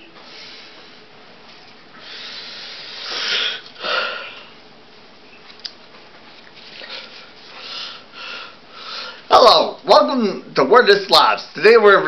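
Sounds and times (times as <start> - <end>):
sniff-like huffs: 2.0 - 4.5
person breathing close: 2.0 - 4.6, 6.8 - 9.3.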